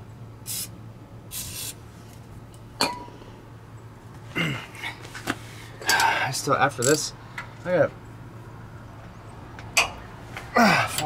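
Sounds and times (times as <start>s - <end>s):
aerosol spray can hissing: 0.5s - 0.7s, 1.3s - 1.8s
man coughing: 4.3s - 4.7s.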